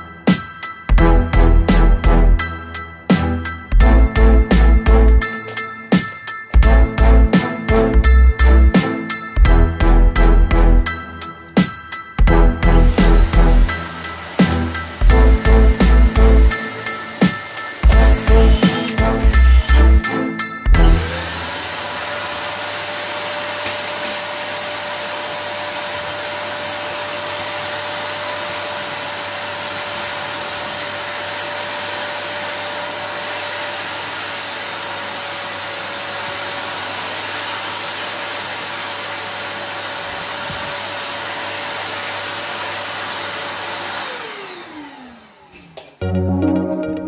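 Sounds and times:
vacuum cleaner running: 11.0s - 46.0s
vacuum motor winding down: 12.6s - 20.1s, 20.8s - 45.8s.

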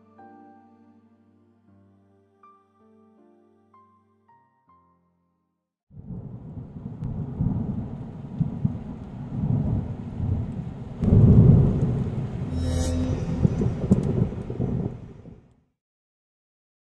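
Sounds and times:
thunder rumbling: 6.0s - 12.6s, 13.2s - 15.4s.

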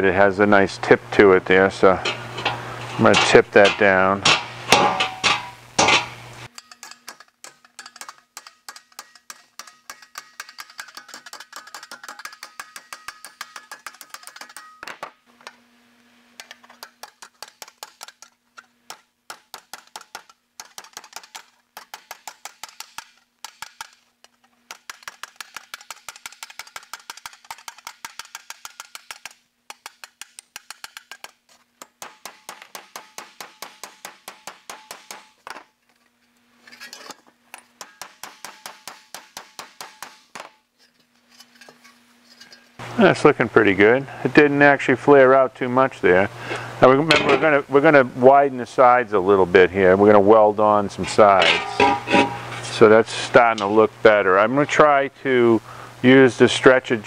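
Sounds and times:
hammer tapping sheet metal: 1.9s - 15.0s, 24.7s - 35.4s, 37.8s - 40.6s, 51.4s - 52.5s.

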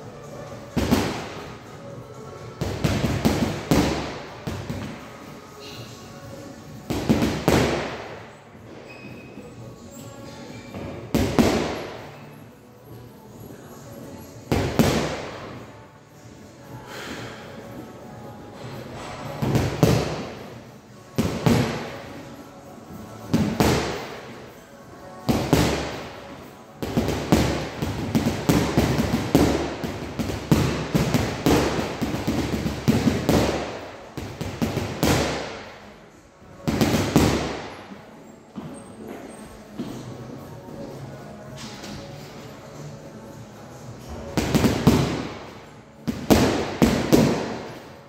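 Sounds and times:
boxing gloves punching heavy bag: 26.8s - 35.6s, 46.1s - 47.7s.

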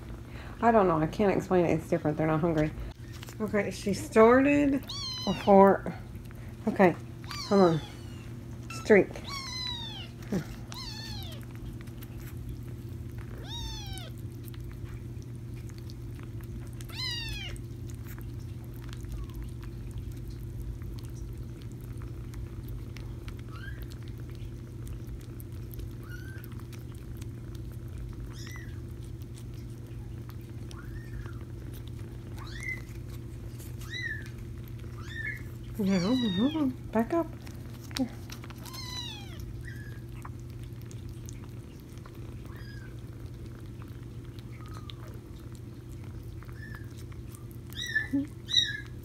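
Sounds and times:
steady low hum: 0.0s - 49.0s
kittens meowing: 4.8s - 5.7s, 7.2s - 12.1s, 13.2s - 14.8s, 16.7s - 19.7s, 28.2s - 28.9s, 30.6s - 33.1s, 33.8s - 36.8s, 38.6s - 40.5s, 41.6s - 43.5s.

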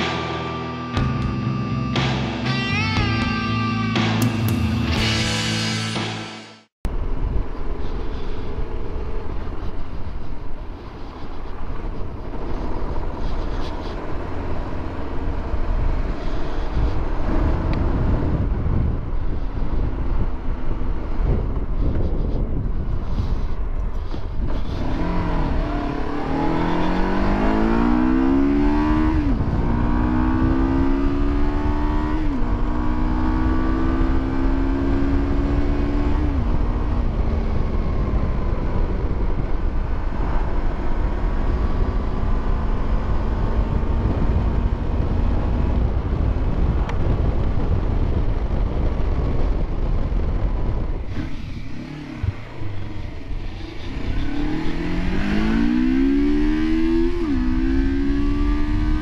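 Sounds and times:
motorcycle engine accelerating: 0.0s - 59.0s
wind rush: 4.6s - 59.0s.

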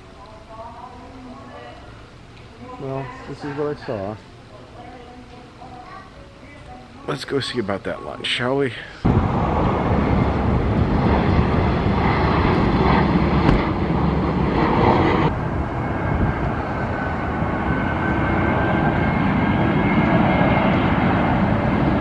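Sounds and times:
vehicle rumble and roar: 9.1s - 22.0s.

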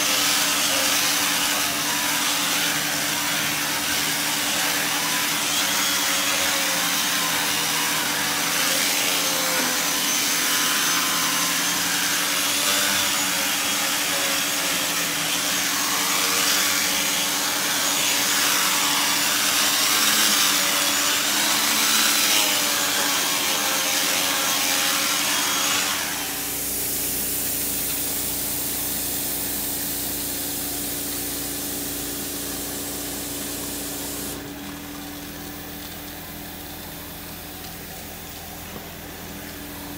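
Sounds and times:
vacuum motor running: 25.2s - 39.9s.

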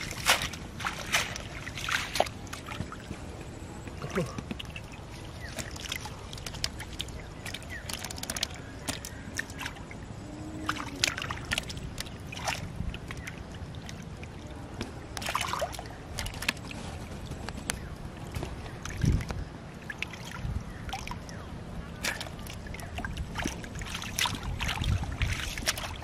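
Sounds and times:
small splashes and spatters: 0.0s - 3.1s, 4.0s - 10.0s, 10.6s - 14.5s, 15.1s - 17.1s, 22.0s - 26.0s
hands sloshing in muddy water: 0.0s - 3.4s, 4.0s - 21.4s, 22.0s - 26.0s.

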